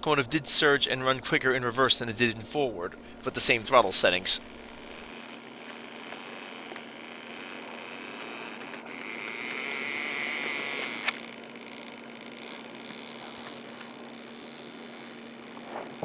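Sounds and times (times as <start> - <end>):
high motor whine: 0.0 - 16.0
model train motor humming: 0.0 - 16.0.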